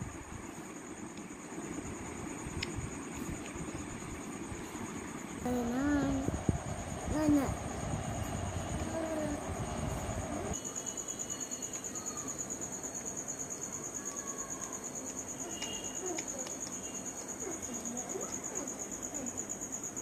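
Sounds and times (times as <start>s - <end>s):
crickets trilling: 0.0s - 20.0s
low rumble: 5.4s - 10.6s.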